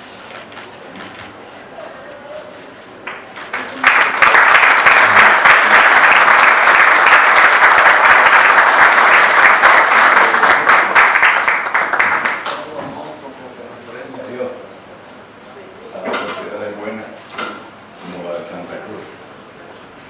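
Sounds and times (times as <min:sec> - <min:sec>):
audience applauding: 0:03.0 - 0:12.7.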